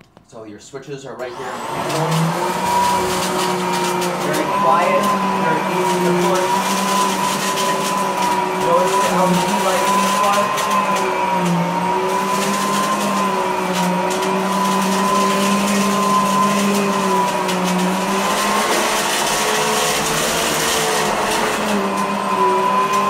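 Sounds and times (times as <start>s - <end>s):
upright vacuum running: 1.2s - 23.0s.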